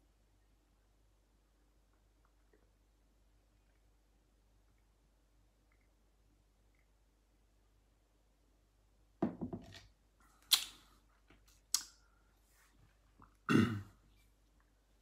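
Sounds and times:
person burping: 13.5s - 14.0s.

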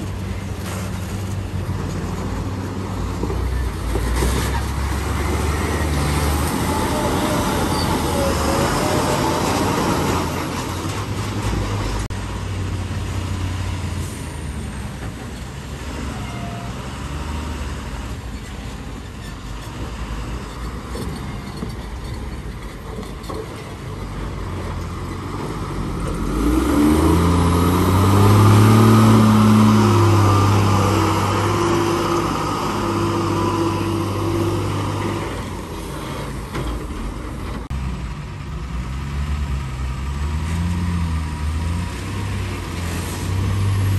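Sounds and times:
truck engine revving: 0.0s - 14.8s, 24.4s - 43.9s
truck diesel engines labouring: 0.0s - 43.9s.

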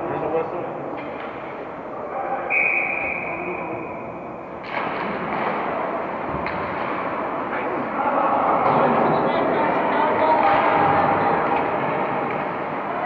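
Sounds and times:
crowd murmur: 0.0s - 13.0s
noise of play on ice: 0.0s - 13.0s
whistle blown: 2.5s - 4.0s.

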